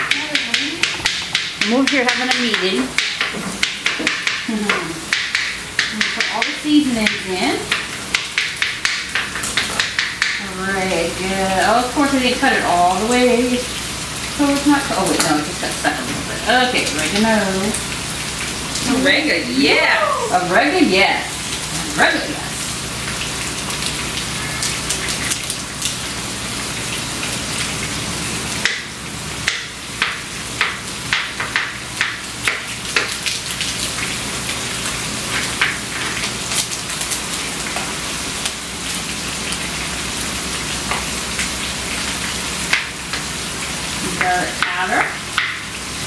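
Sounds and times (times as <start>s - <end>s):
food sizzling in a frying pan: 0.0s - 46.0s
crackling oil pops: 0.1s - 10.4s, 28.6s - 34.1s.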